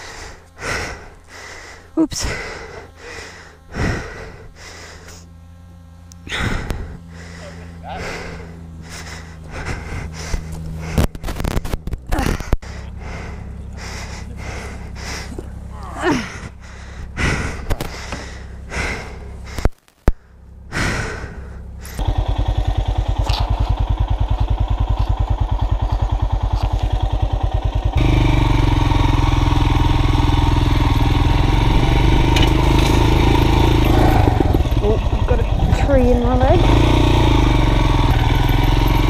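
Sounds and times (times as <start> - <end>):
person breathing and gasping: 0.0 - 5.3, 6.2 - 11.2, 12.1 - 22.0
motorcycle engine: 0.0 - 39.0.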